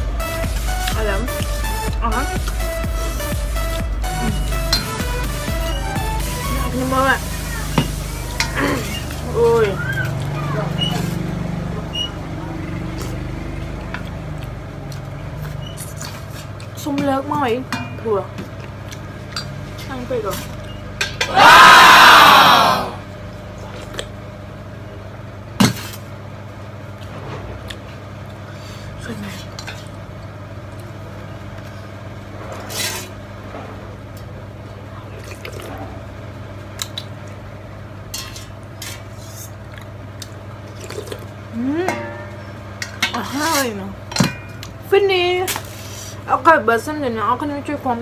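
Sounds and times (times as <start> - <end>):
loud vocal exclamation: 21.3 - 23.0.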